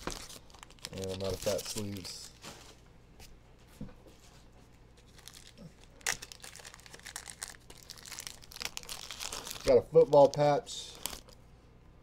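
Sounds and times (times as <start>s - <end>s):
plastic packaging crinkling: 0.0s - 2.4s, 5.0s - 11.4s.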